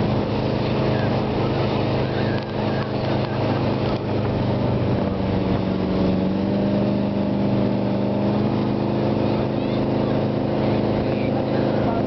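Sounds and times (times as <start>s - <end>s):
motorboat engine running: 0.0s - 12.0s
water rushing in wake: 0.0s - 12.0s.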